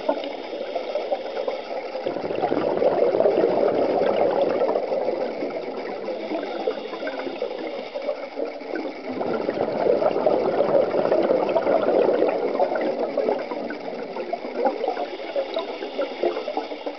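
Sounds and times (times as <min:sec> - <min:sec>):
air bubbles gurgling underwater: 0:00.0 - 0:16.9.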